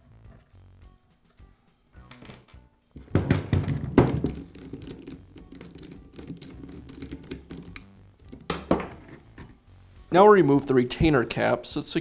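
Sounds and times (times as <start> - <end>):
tool knocking on workbench: 3.0 - 4.8, 8.4 - 9.0
screwdriver clicks and rattles: 4.5 - 8.6.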